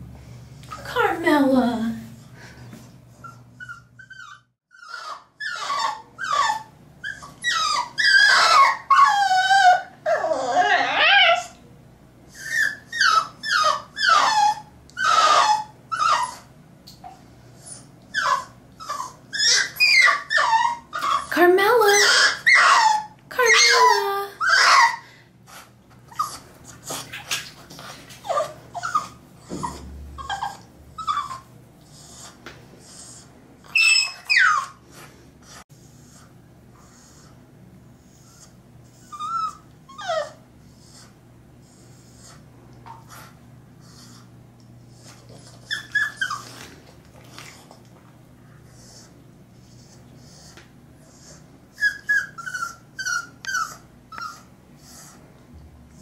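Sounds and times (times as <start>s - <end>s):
puppy whining and crying: 3.1s - 11.6s, 12.3s - 36.2s, 38.1s - 41.2s, 44.9s - 47.6s, 48.8s - 55.2s.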